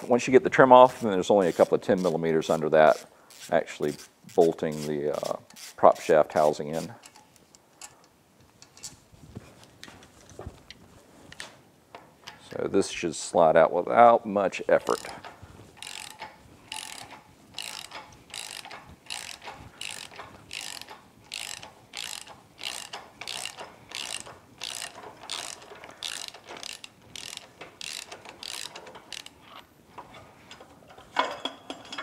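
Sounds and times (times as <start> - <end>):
ratchet wrench clicking: 1.4 - 2.1, 2.9 - 6.1, 14.8 - 15.2, 15.8 - 29.4.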